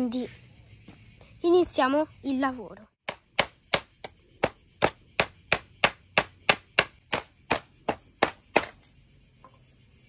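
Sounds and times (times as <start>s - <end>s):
hammer hitting nail into wood: 3.0s - 8.7s.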